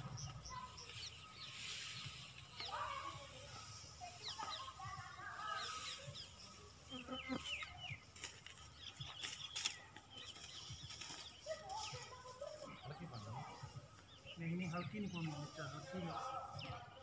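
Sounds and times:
birds chirping: 0.0 - 17.0
dry straw crackling: 0.0 - 17.0.

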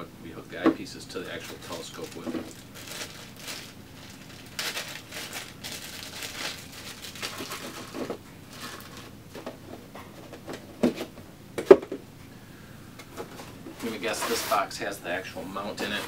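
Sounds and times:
packaging rustling and crinkling: 1.4 - 11.1.

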